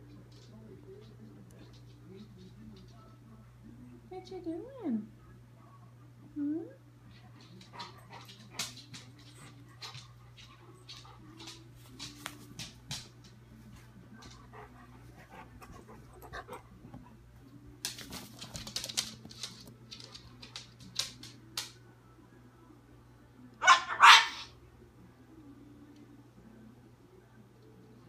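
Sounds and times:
dog barking: 23.6 - 24.5.

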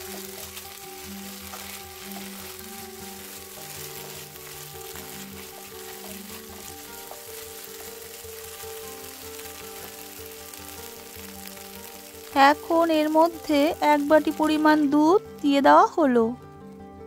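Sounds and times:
wooden spatula scraping a pan: 0.0 - 12.3
paste sizzling in hot fat: 0.0 - 16.8
soft background music: 0.0 - 17.0.

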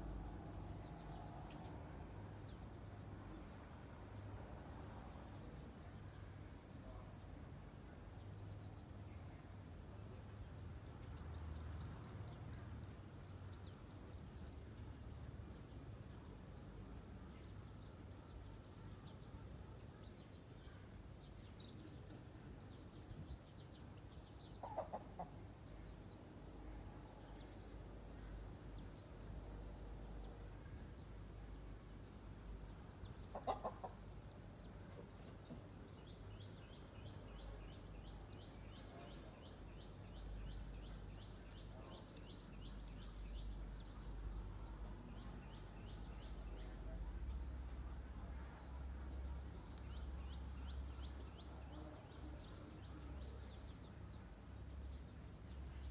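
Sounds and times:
thin high whine: 0.0 - 55.9
hen clucking: 33.3 - 33.9.

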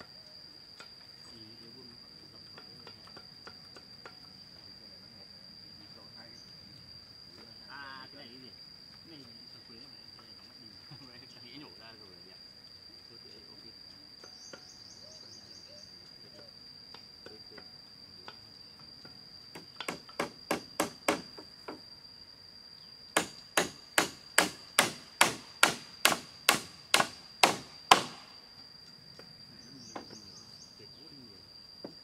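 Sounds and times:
high insect drone: 0.0 - 32.0
tool striking bamboo: 2.4 - 4.4, 16.9 - 21.8, 23.1 - 28.3.

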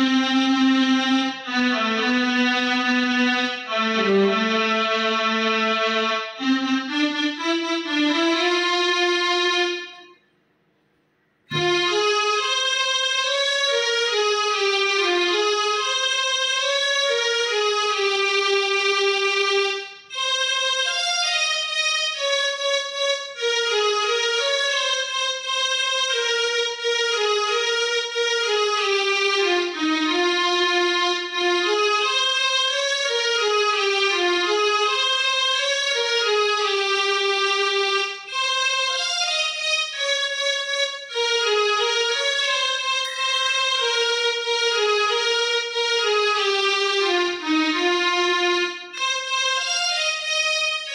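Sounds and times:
electronic keyboard melody: 11.5 - 29.0, 41.2 - 50.9.

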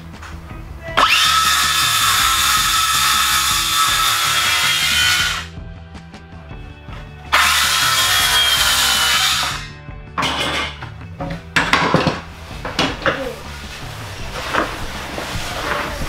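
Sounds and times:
faint background music: 0.0 - 16.0
power tool motor whine: 1.0 - 5.5, 7.3 - 9.7.

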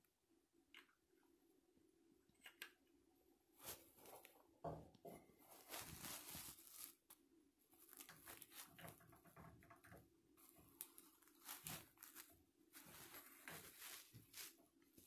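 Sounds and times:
rustling and light scraping: 3.6 - 4.5, 5.1 - 7.1, 7.7 - 15.0.

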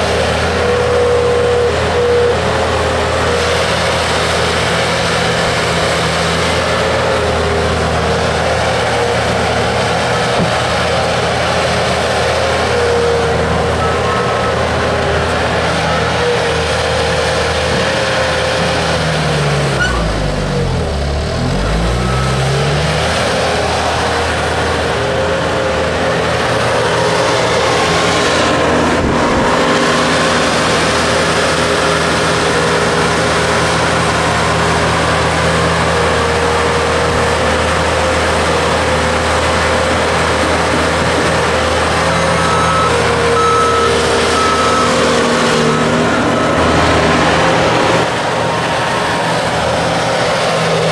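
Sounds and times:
diesel engine running hard: 0.0 - 50.9
short beeps: 42.4 - 46.5.

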